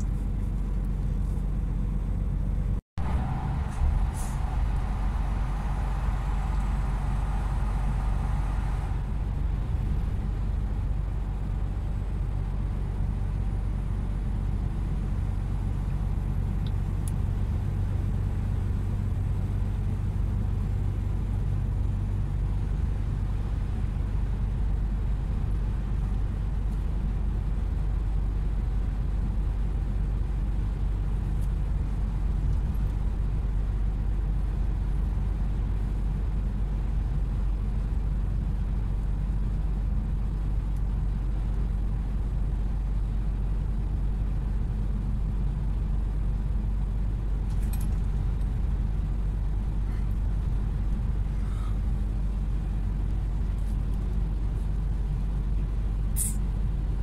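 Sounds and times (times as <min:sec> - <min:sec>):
road and tyre noise: 0:00.0 - 0:57.0
truck engine running: 0:00.0 - 0:57.0.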